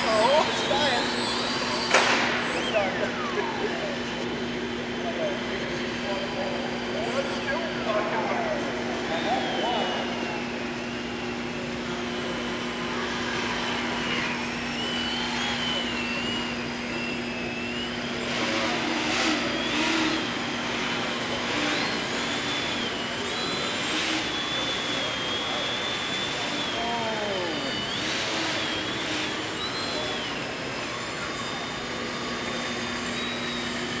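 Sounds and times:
model plane motor whining: 0.0s - 34.0s
steady low hum: 0.0s - 34.0s.

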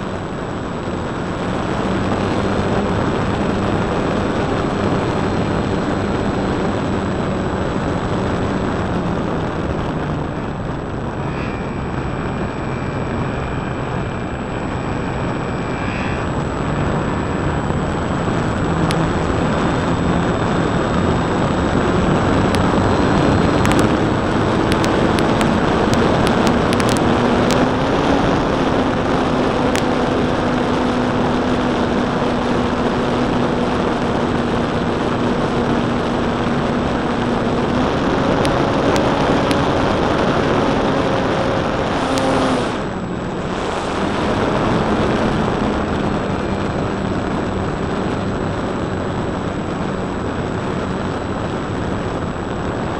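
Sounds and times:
model airplane motor and propeller: 0.0s - 52.9s
wind rushing over microphone: 0.0s - 52.9s
sharp clicks: 23.5s - 24.0s.

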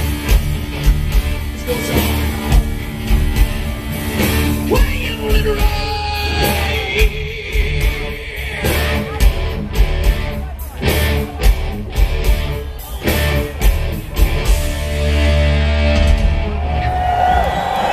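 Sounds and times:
bass guitar: 0.0s - 17.9s
distorted electric guitars: 0.0s - 17.9s.

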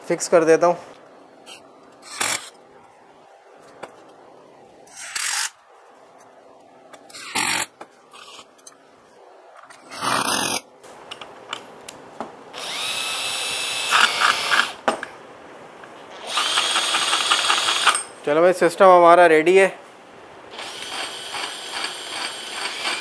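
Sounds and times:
cordless drill whining: 12.6s - 14.8s, 16.2s - 18.0s, 20.5s - 23.0s.

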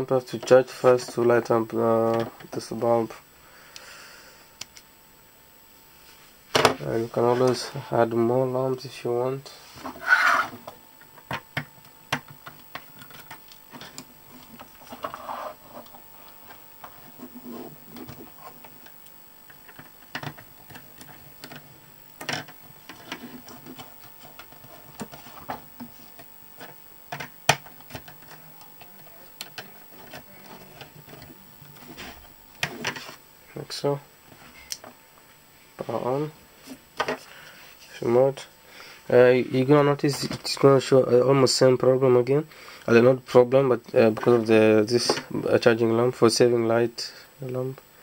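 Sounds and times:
hands handling wires and tools: 9.8s - 33.2s.

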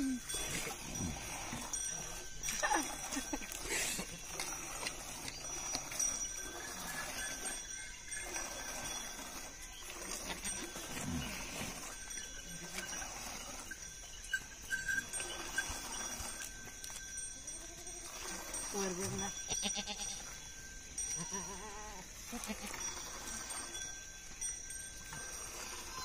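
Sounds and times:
goats bleating: 19.5s - 20.3s, 21.1s - 22.8s.

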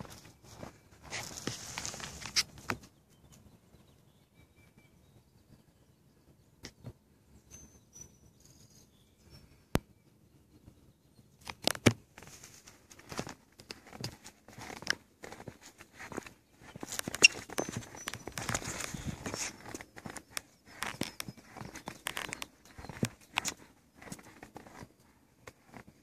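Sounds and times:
footsteps and shoe scuffs on concrete: 0.0s - 2.6s, 13.1s - 26.0s.

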